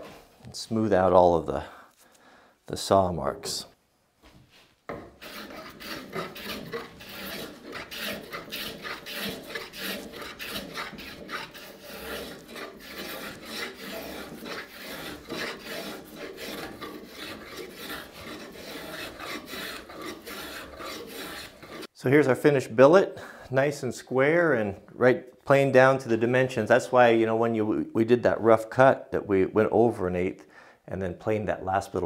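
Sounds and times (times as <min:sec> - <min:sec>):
hand plane shaving wood: 0:04.9 - 0:21.9.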